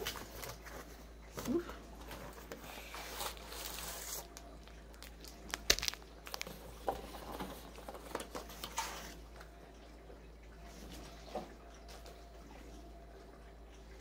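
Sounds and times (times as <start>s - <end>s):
cardboard packaging rustling: 0.0s - 9.2s.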